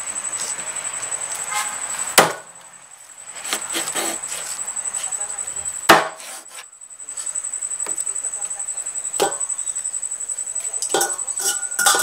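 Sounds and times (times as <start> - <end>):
knife chopping on wooden board: 5.9 - 6.2.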